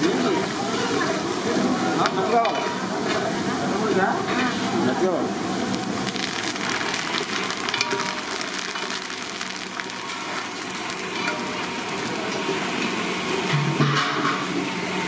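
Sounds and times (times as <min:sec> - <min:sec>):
spices sizzling in hot oil: 0:00.0 - 0:15.0
metal spatula stirring: 0:07.1 - 0:09.0, 0:09.6 - 0:12.4.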